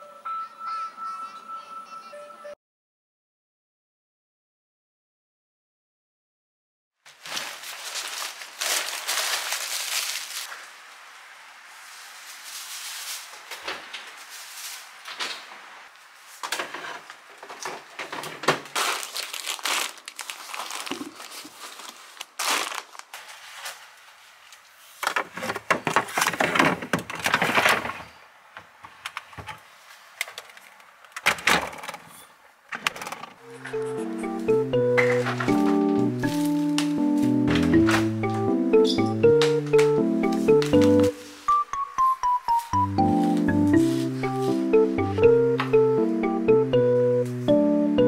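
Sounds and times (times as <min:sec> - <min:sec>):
cloth bag rustling: 0:07.1 - 0:10.6, 0:18.8 - 0:24.0
plastic food packets crinkling: 0:07.1 - 0:10.6, 0:18.2 - 0:23.9.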